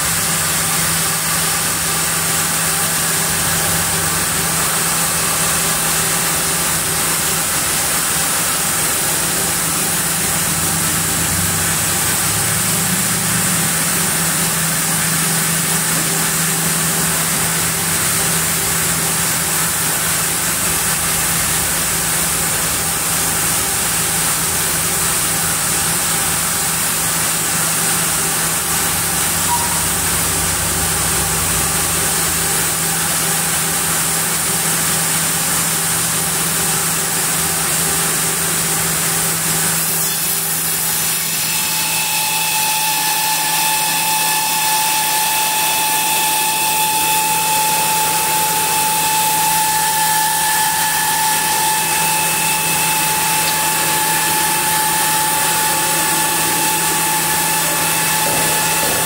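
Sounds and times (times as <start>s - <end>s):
band saw running: 0.0s - 59.0s
high steady whine: 0.0s - 59.0s.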